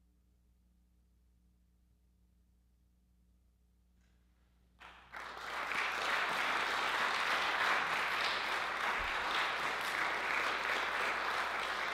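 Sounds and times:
audience applause: 4.8s - 11.9s.

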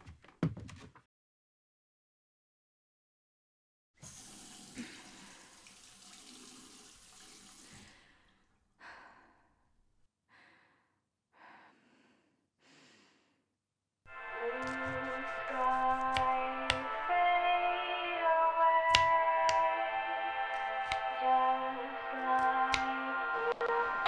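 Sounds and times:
heavy breaths: 10.3s - 13.5s.

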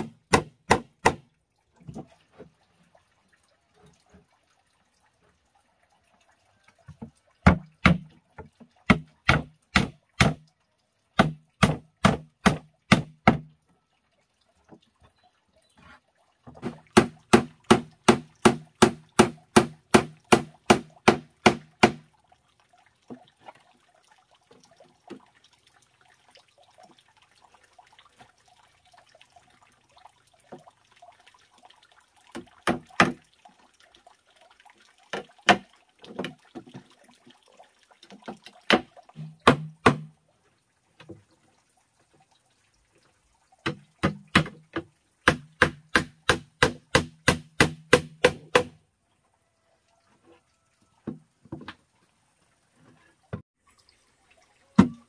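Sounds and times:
hammer driving nails into wood: 45.3s - 48.7s.

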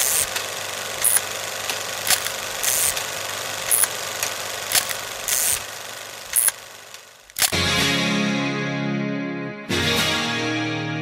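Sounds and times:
old film crackle hiss: 0.0s - 7.6s
sharp clicks: 0.0s - 7.6s.

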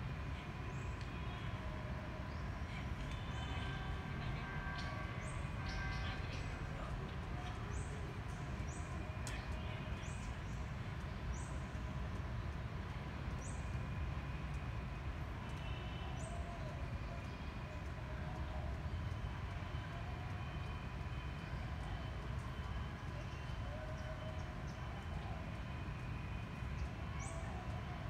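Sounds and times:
low rumbling background noise: 0.0s - 28.0s.

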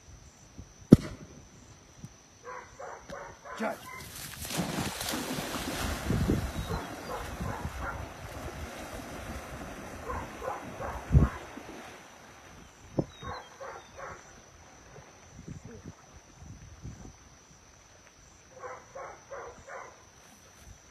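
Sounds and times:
water churning: 3.6s - 12.6s
dog splashing into water: 3.8s - 12.1s.

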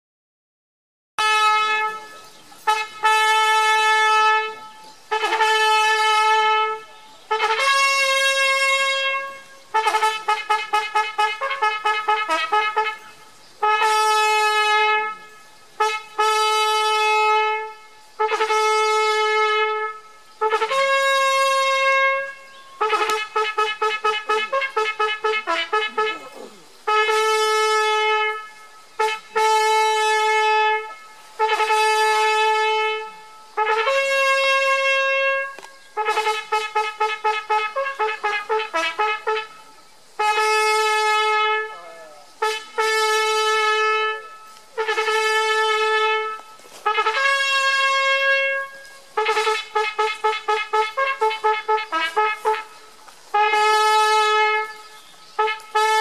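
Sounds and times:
brass horn playing a signal call: 1.2s - 56.0s.

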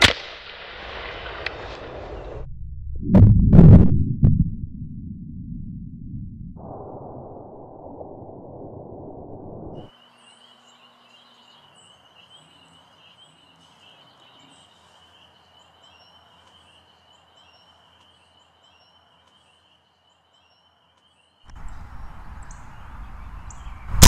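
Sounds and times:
air rifle shot: 0.0s - 0.5s
bird chirps: 9.8s - 24.0s
rumbling open-air noise: 21.5s - 24.0s.

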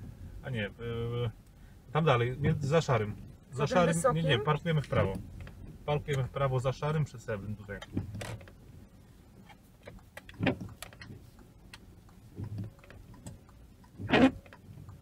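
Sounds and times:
car engine and tyres humming: 0.0s - 15.0s.

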